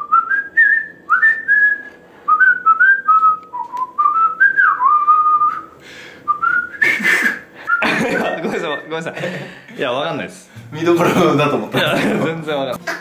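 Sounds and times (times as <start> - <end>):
man whistling a tune: 0.0 - 8.0.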